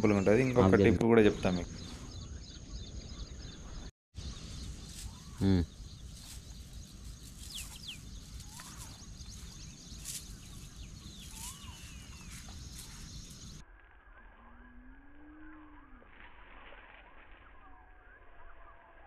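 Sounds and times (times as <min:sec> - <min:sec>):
bird chirps and whistles: 0:11.2 - 0:12.9.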